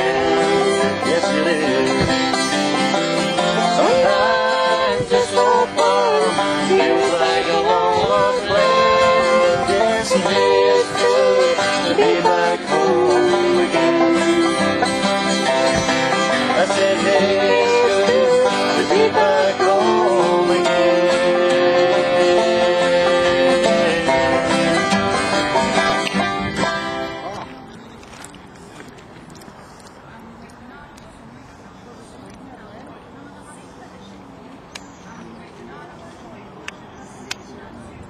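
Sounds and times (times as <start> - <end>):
man singing: 0.0 - 2.2, 3.4 - 14.9, 16.2 - 25.0
acoustic guitar strumming: 0.0 - 27.7.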